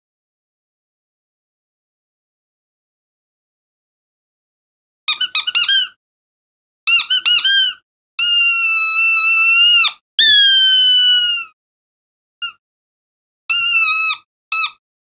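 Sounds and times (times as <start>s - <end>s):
squeaky dog toy squeaking: 5.1s - 6.0s, 6.9s - 11.5s, 13.5s - 14.8s.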